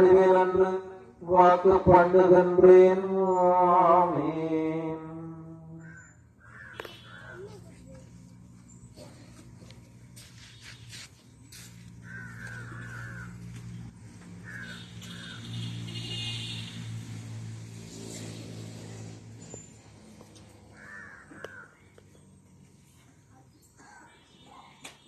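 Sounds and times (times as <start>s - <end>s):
crows cawing: 5.8s - 7.6s, 11.8s - 15.8s, 20.6s - 22.0s.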